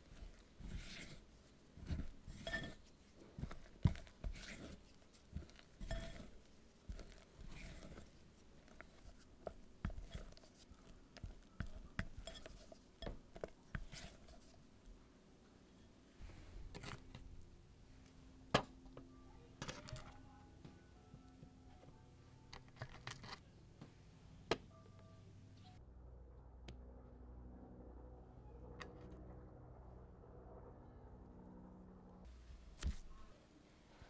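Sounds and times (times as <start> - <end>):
spatula scraping and squelching batter: 0.0 - 14.6.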